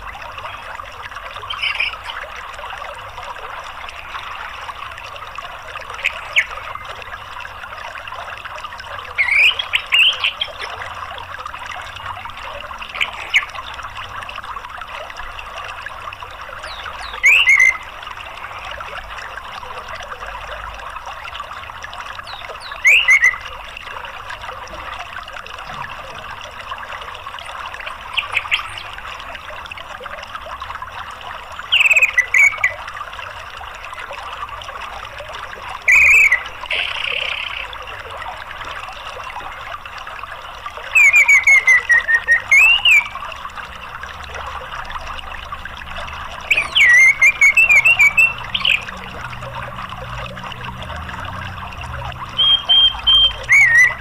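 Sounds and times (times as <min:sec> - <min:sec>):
running water: 0:00.0 - 0:54.0
thrush calling: 0:01.5 - 0:02.2, 0:09.2 - 0:10.7, 0:16.7 - 0:17.9, 0:22.4 - 0:23.6, 0:35.8 - 0:37.8, 0:40.9 - 0:43.2, 0:46.4 - 0:49.1, 0:52.3 - 0:54.0.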